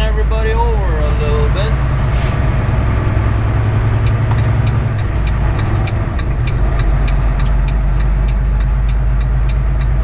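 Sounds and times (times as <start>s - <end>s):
truck engine and road drone: 0.0s - 10.0s
light regular ticking: 4.0s - 10.0s.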